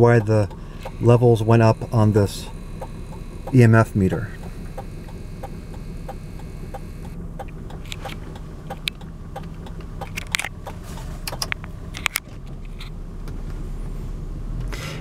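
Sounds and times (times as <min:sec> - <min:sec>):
sharp irregular clicks and knocks: 0:00.0 - 0:01.3, 0:04.4 - 0:12.9
hazard light relay ticking: 0:00.0 - 0:11.8
car engine idling: 0:00.0 - 0:15.0.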